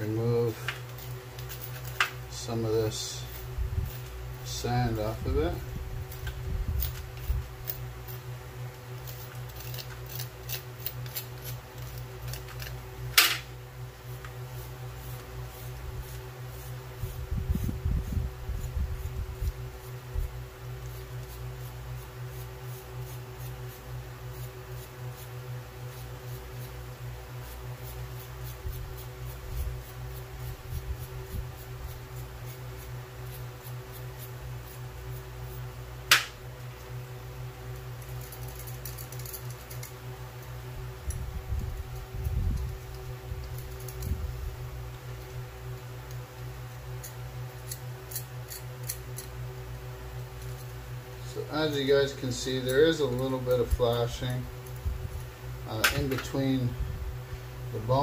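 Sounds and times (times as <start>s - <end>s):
steady low hum: 0.0s - 58.0s
tools scraping metal piece: 0.6s - 2.2s, 8.9s - 13.4s, 38.0s - 40.0s, 47.0s - 49.4s.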